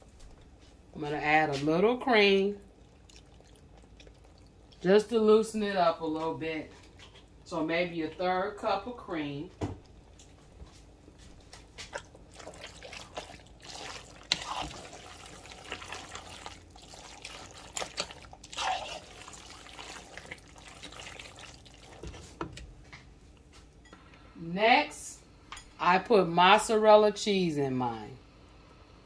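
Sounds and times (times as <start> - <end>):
spoon stirring thick sauce: 2.6 - 5.1, 9.8 - 22.6.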